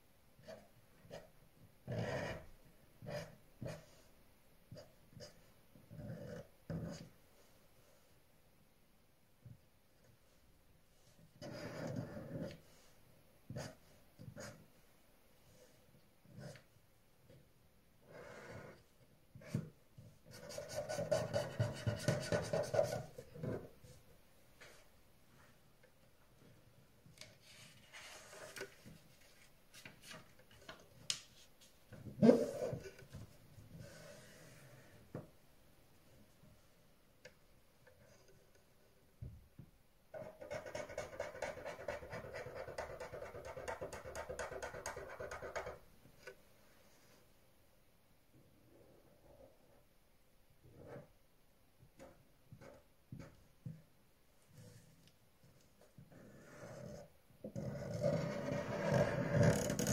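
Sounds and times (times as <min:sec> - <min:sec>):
pen scratching on paper: 0:03.0 - 0:04.0, 0:11.4 - 0:12.7, 0:20.3 - 0:23.6, 0:40.2 - 0:45.8, 0:56.1 - 0:59.9.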